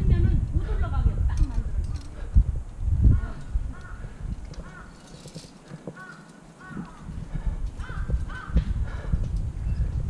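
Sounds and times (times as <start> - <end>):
low microphone rumble: 0.0 - 4.9
bird calling: 3.2 - 7.1.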